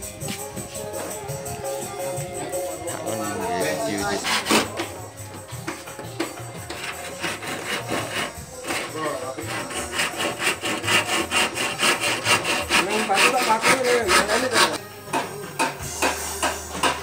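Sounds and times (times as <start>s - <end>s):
hand saw cutting bamboo: 4.1s - 4.8s, 6.7s - 14.8s.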